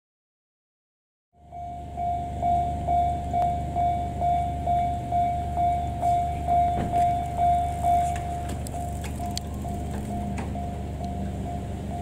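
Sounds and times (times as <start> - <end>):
low rumble: 1.4 - 12.0
level crossing electronic bell: 1.5 - 8.5.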